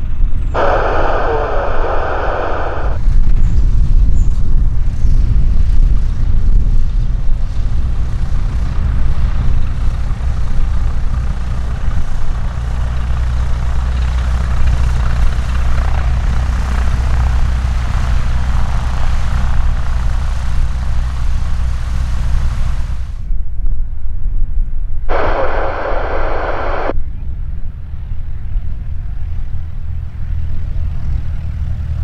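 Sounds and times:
propeller aircraft engine: 0:00.0 - 0:23.3, 0:25.1 - 0:32.0
low rumble: 0:00.6 - 0:03.0, 0:25.1 - 0:26.9.

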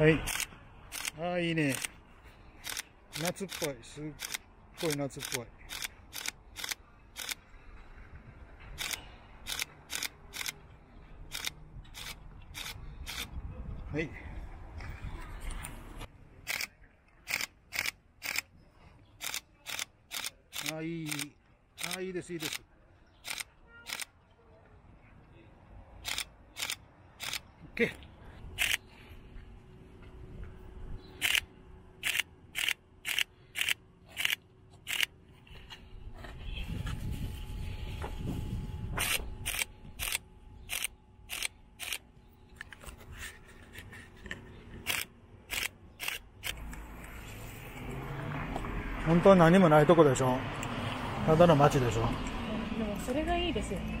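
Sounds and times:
camera shutter clicking: 0:02.6 - 0:07.4, 0:08.8 - 0:10.6, 0:19.2 - 0:22.6, 0:26.0 - 0:27.4, 0:31.2 - 0:35.1, 0:39.0 - 0:42.0, 0:44.8 - 0:46.8.

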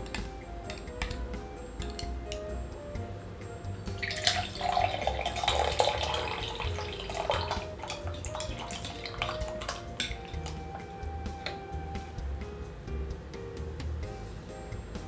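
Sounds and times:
liquid pouring into glass: 0:03.9 - 0:10.4.

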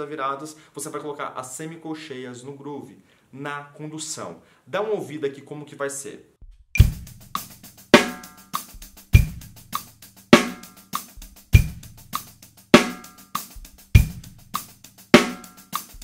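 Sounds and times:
bass drum: 0:06.4 - 0:16.0
hi-hat sixteenth notes: 0:06.8 - 0:16.0
snare drum: 0:06.8 - 0:16.0.

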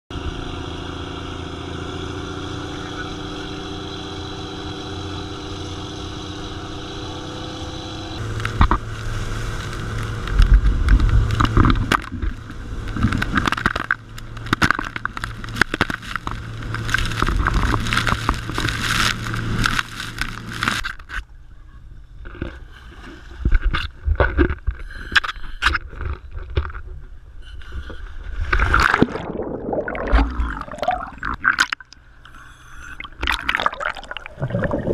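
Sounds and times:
boat engine running: 0:00.1 - 0:34.9
water rushing along hull: 0:00.1 - 0:34.9
choppy water splashing: 0:08.2 - 0:21.2, 0:22.2 - 0:34.9.

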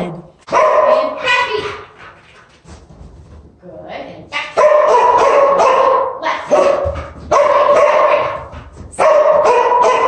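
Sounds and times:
dog barking long barks: 0:04.4 - 0:08.4, 0:09.0 - 0:10.0.

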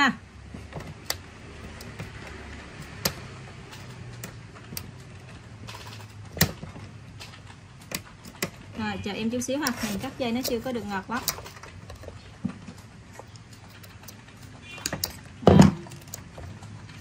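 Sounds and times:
metal clicks and taps: 0:00.8 - 0:05.2, 0:06.3 - 0:08.7, 0:11.2 - 0:17.0.

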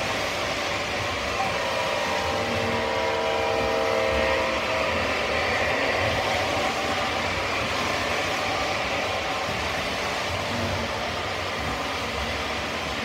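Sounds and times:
model trains rolling on track: 0:00.0 - 0:13.0
train horn chord: 0:01.2 - 0:09.3.

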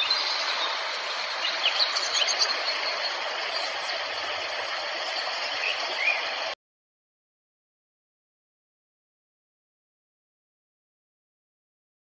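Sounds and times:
outdoor hiss: 0:00.0 - 0:06.6.

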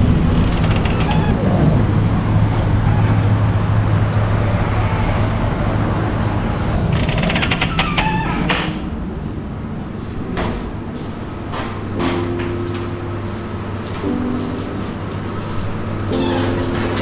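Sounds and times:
low engine hum: 0:00.0 - 0:07.0
road traffic noise: 0:00.0 - 0:17.0.

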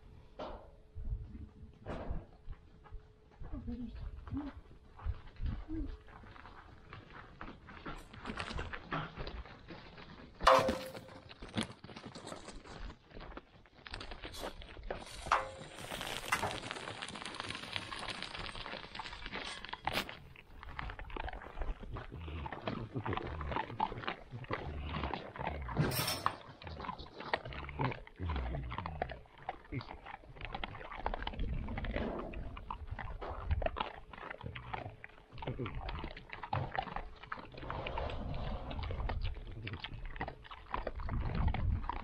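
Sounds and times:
animals crunching and chewing feed: 0:00.0 - 0:42.0
metallic clanks: 0:10.5 - 0:11.2
dry feed pouring onto gravel: 0:15.0 - 0:19.4.

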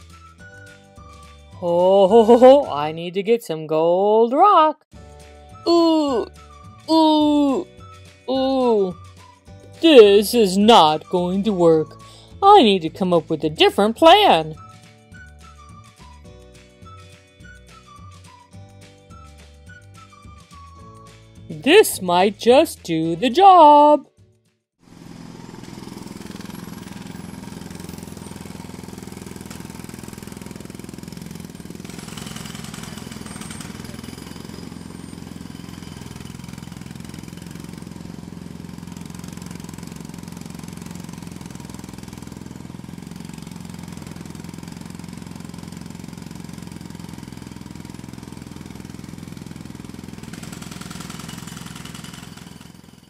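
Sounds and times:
jackhammer hammering: 0:24.8 - 0:53.0
engine drone: 0:24.9 - 0:50.4.

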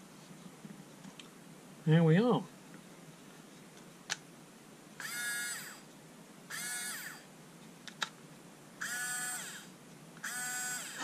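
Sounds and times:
electric screwdriver motor whine: 0:05.0 - 0:05.8, 0:06.5 - 0:07.3, 0:08.8 - 0:11.0.

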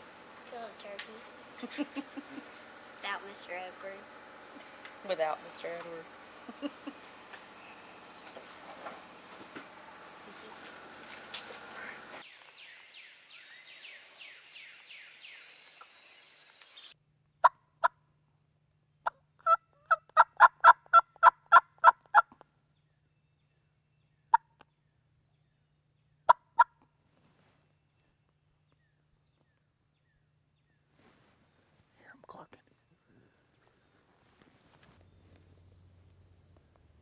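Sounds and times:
faint songbird chirping: 0:06.6 - 0:17.0, 0:17.9 - 0:19.2, 0:22.1 - 0:37.0
turkey yelping: 0:19.0 - 0:22.4.

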